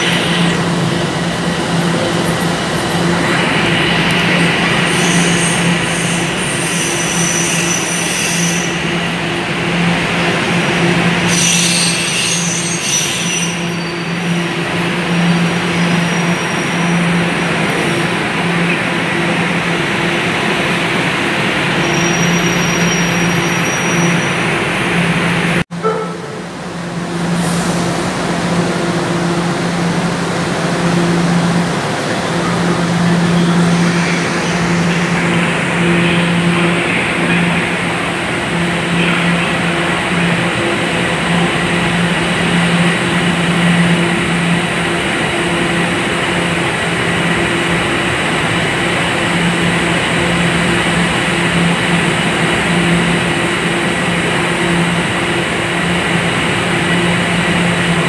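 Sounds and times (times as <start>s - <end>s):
low train hum: 0.0s - 58.0s
high-pitched wheel squeal: 4.9s - 8.8s, 11.3s - 14.4s.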